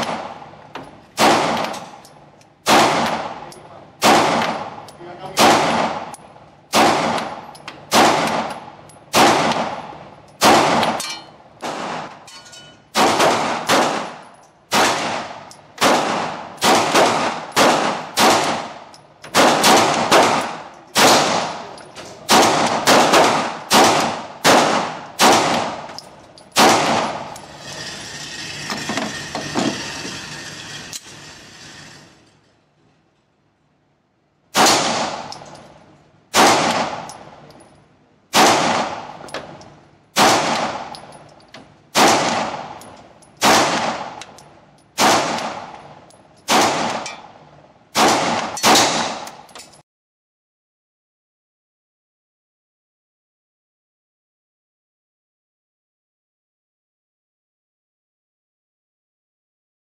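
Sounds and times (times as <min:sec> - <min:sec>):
pistol shots echoing indoors: 0:02.6 - 0:12.2, 0:12.9 - 0:27.4, 0:34.5 - 0:35.5, 0:36.3 - 0:37.3, 0:38.3 - 0:39.2, 0:40.2 - 0:41.0, 0:41.9 - 0:42.8, 0:43.4 - 0:44.3, 0:45.0 - 0:45.8, 0:46.4 - 0:47.2, 0:47.9 - 0:49.5.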